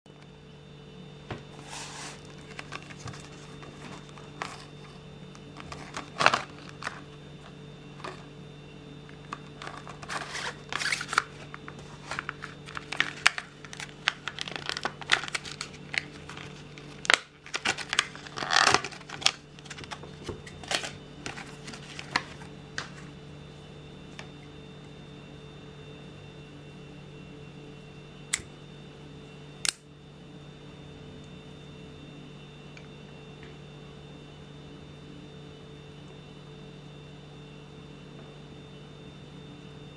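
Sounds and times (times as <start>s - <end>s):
plastic bag crinkling: 1.6s - 8.3s, 9.2s - 23.0s.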